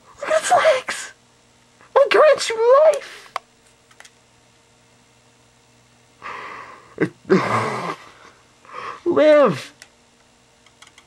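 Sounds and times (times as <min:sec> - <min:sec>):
person breathing out in bursts: 0:06.2 - 0:09.1.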